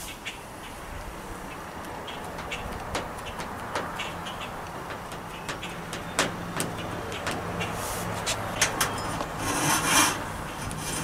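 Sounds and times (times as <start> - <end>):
vehicle engine running: 1.4 - 9.3.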